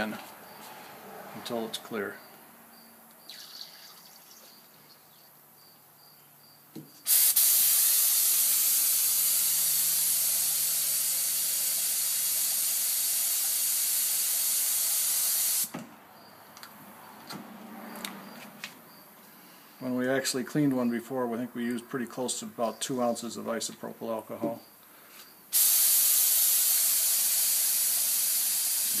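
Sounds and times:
compressed air hissing through spray gun: 7.1s - 15.7s, 25.5s - 29.0s.

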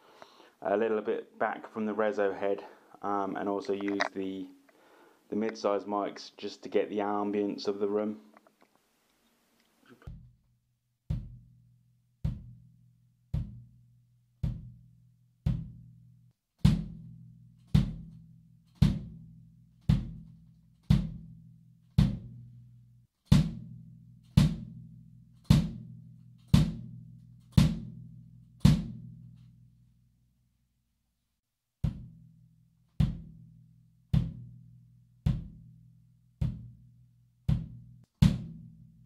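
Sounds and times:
bass drum booms: 10.1s - 10.4s, 11.1s - 11.6s, 12.2s - 13.8s, 14.4s - 16.0s, 16.6s - 18.2s, 18.8s - 20.3s, 20.9s - 21.4s, 22.0s - 22.5s, 23.3s - 23.8s, 24.4s - 24.9s, 25.5s - 27.0s, 27.6s - 29.2s, 31.8s - 32.4s, 33.0s - 34.7s, 35.3s - 35.8s, 36.4s - 36.9s, 37.5s - 39.0s.

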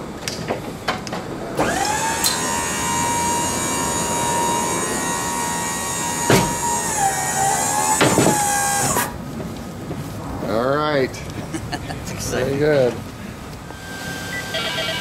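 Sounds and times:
hydraulic pump motor whining: 1.6s - 9.2s, 13.6s - 15.0s.

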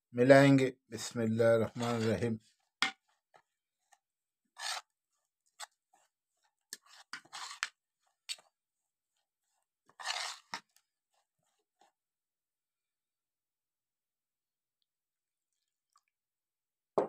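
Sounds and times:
cutlery scraping a ceramic plate: 4.6s - 4.9s, 6.8s - 7.7s, 9.9s - 10.8s.

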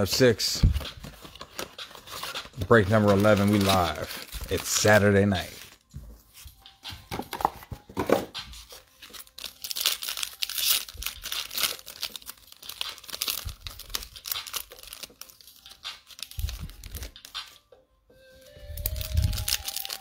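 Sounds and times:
foil wrapper tearing and crinkling: 9.0s - 15.4s, 18.8s - 20.0s.

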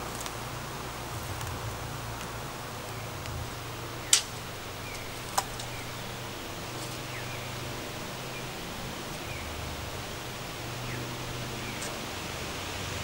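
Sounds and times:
low steady hum: 0.0s - 13.0s
faint bird chirps: 2.8s - 12.2s.

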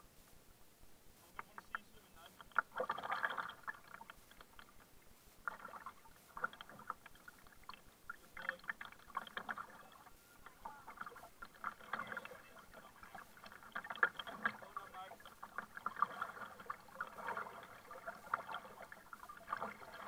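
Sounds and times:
paddle strokes in water: 1.2s - 20.0s
water splashing and dripping: 2.4s - 4.8s, 5.4s - 20.0s.

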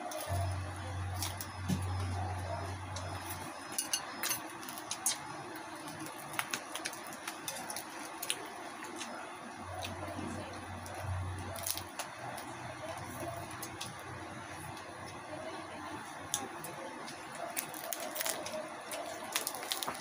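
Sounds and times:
low hum: 0.0s - 5.8s
crispy skin crackling torn: 17.6s - 20.0s.

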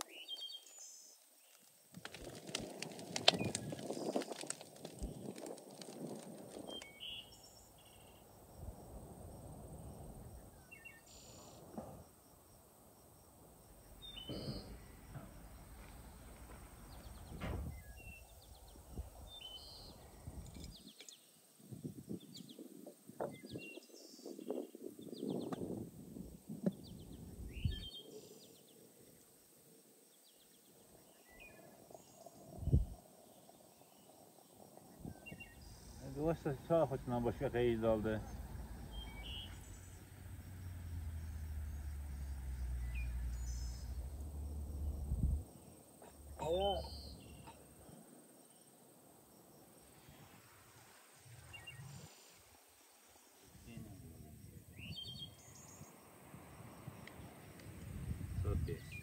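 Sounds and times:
bird chirps: 0.0s - 1.6s, 6.7s - 8.3s, 10.3s - 11.7s, 13.9s - 21.4s, 30.3s - 40.4s, 41.1s - 44.2s, 45.6s - 48.7s, 54.7s - 56.0s
wood fire crackling and popping: 1.2s - 7.4s
tea leaves rustling into teapot: 1.5s - 7.0s
dull thump: 14.2s - 18.2s
high insect trill: 24.3s - 59.0s.

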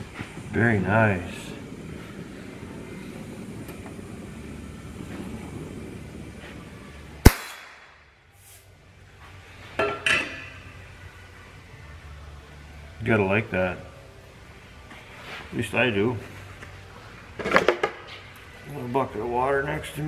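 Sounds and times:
torch flame hissing: 0.0s - 9.5s
sharp loud pop: 7.2s - 8.0s.

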